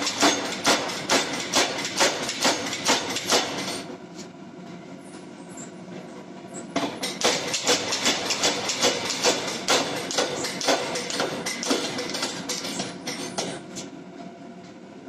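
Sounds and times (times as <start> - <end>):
power hammer striking metal: 0.0 - 3.9, 6.8 - 13.6
steady machine hum: 0.0 - 15.0.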